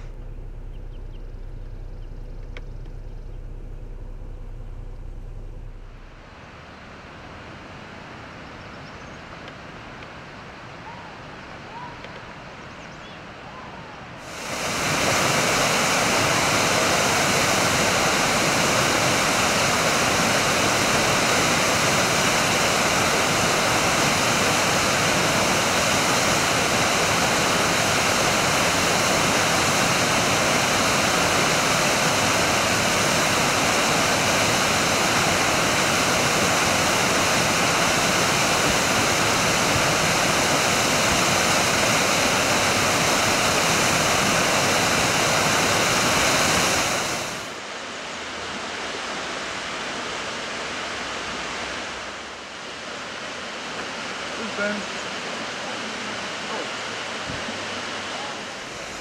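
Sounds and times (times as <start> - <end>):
waterfall rushing: 0.0 - 0.6, 14.2 - 59.0.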